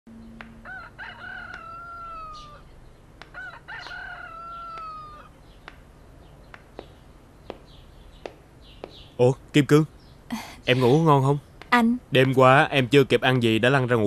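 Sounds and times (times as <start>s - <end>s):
rooster crowing: 0.4s - 5.3s.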